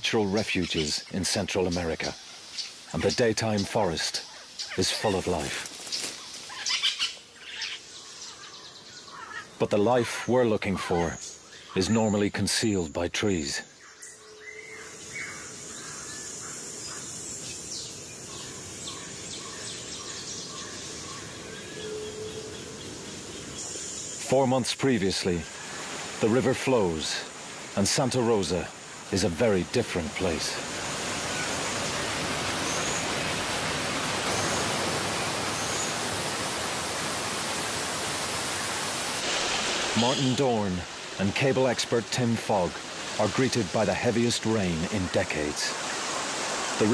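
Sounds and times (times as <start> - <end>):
flowing water rushing: 0.0 - 12.1, 14.6 - 46.9
birds chirping and whistling: 4.4 - 9.6, 13.7 - 24.2, 31.1 - 33.4, 34.2 - 36.0, 39.9 - 40.7
insect drone: 13.8 - 24.3, 25.3 - 44.2.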